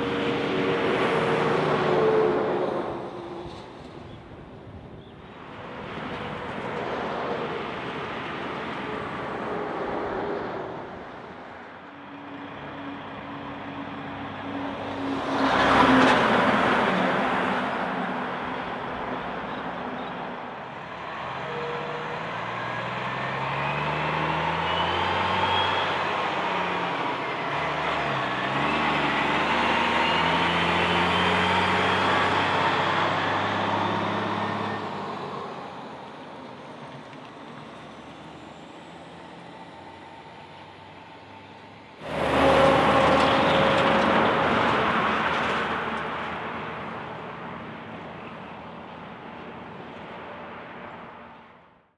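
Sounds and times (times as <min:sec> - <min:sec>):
heavy trucks passing: 0:00.0 - 0:51.8
diesel truck engine pulling away: 0:20.8 - 0:49.0.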